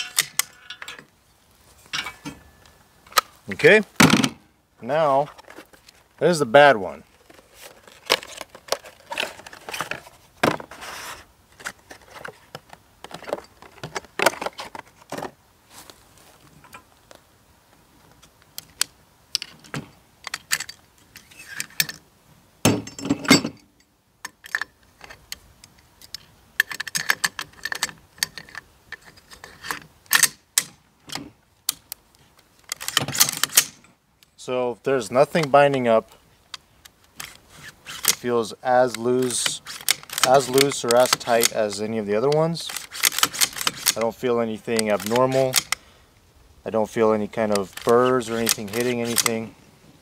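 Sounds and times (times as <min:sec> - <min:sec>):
metal rifle parts clicking and clacking: 0:00.0 - 0:01.1, 0:01.8 - 0:03.4, 0:11.6 - 0:15.2, 0:18.6 - 0:22.0, 0:22.7 - 0:34.0, 0:35.3 - 0:45.8, 0:47.2 - 0:49.5.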